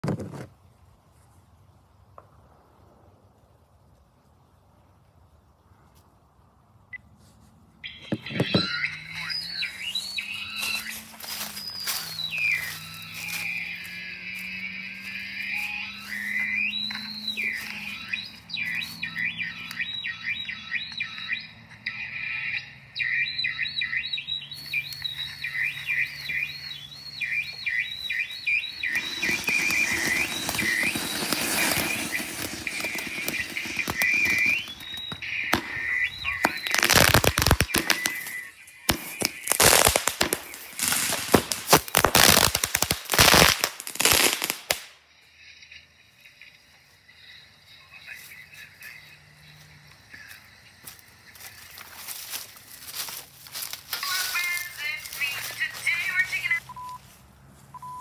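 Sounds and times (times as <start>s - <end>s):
warbling high-pitched tones: 8.0s - 22.5s, 25.1s - 44.5s
firework hissing: 28.8s - 44.9s
firework crackling pops: 28.8s - 45.0s.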